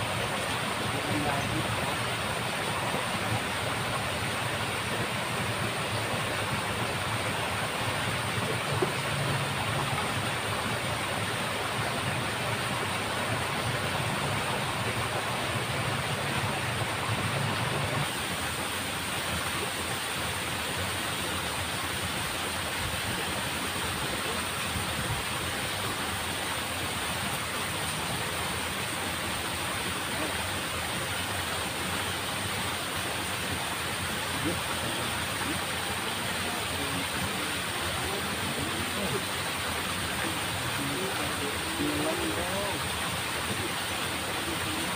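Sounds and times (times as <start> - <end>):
water rushing in a ditch: 0.0 - 44.9.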